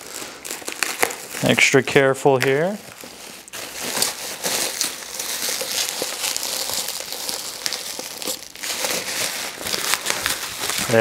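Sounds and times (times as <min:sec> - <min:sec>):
packing wrap crinkling and tearing: 0:00.0 - 0:11.0.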